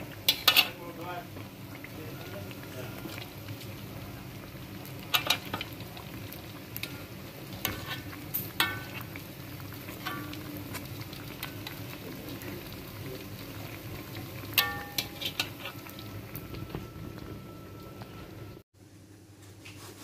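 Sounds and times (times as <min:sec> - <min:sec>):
dough deep-frying sizzle: 0:00.0 - 0:20.0
metal tongs clinking on wok: 0:00.3 - 0:00.8, 0:05.0 - 0:05.7, 0:07.6 - 0:09.1, 0:09.9 - 0:10.5, 0:14.5 - 0:15.8.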